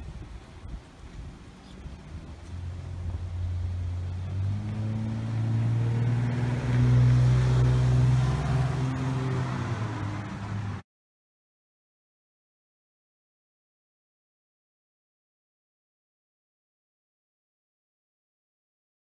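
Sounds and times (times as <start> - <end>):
engine low hum: 0.0 - 10.8.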